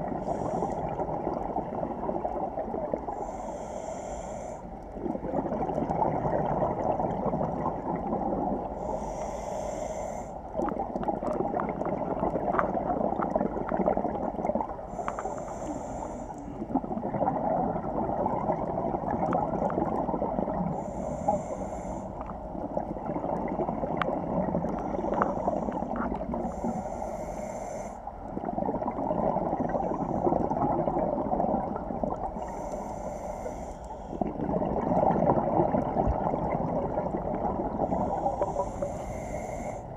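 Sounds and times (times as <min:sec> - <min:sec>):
bubbling exhaled air: 0:00.0 - 0:39.9
regulator inhale hiss: 0:00.1 - 0:01.1, 0:03.1 - 0:05.0, 0:08.7 - 0:10.6, 0:14.8 - 0:16.8, 0:20.7 - 0:22.6, 0:24.6 - 0:28.4, 0:32.4 - 0:34.4, 0:37.7 - 0:39.9.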